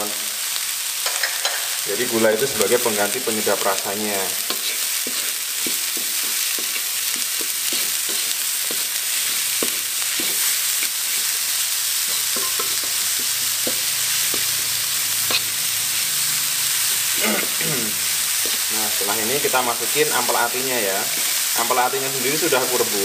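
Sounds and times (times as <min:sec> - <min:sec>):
vegetables sizzling in a wok: 0:00.0 - 0:23.0
wooden spatula scraping a pan: 0:04.3 - 0:15.6.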